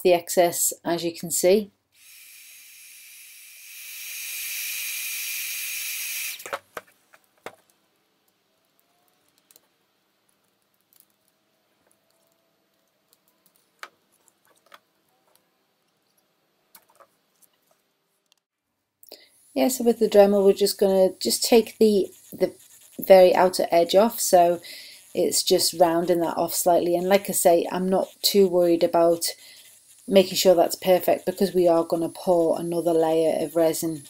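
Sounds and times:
heat gun hissing: 2.0s - 6.6s, 19.2s - 34.0s.

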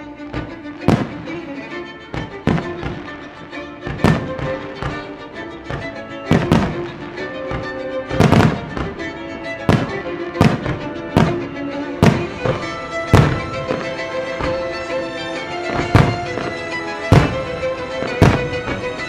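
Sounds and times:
music playing: 0.0s - 19.0s
firework shells bursting: 0.1s - 19.0s.

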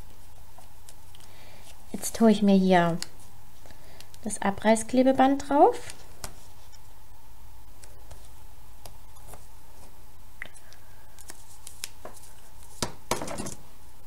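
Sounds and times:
tape and card rustling: 11.1s - 12.9s.

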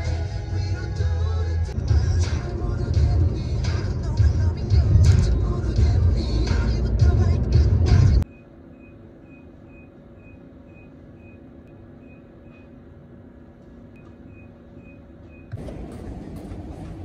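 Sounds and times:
low steady hum: 0.0s - 17.0s
faint high-pitched beeps: 8.2s - 12.8s, 14.0s - 15.5s.

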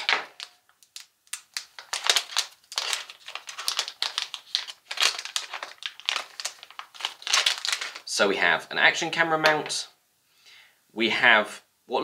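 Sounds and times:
plastic packaging crinkling: 0.0s - 8.2s.

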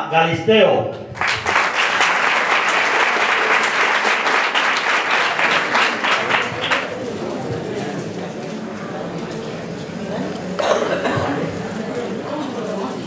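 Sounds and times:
audience applauding: 1.2s - 7.3s.

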